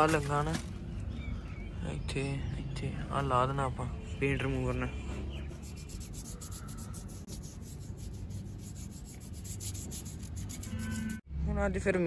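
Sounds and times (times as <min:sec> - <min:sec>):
toothbrush scrubbing metal: 0:05.5 - 0:11.2.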